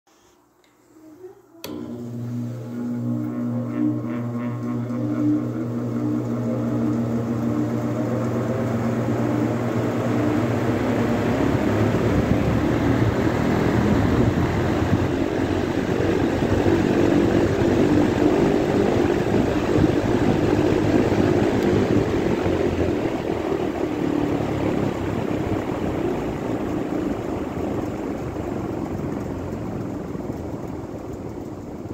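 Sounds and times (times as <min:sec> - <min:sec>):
fan motor hum with rising whine: 0:00.6 - 0:31.9
rush of air from fan blades: 0:05.0 - 0:31.9.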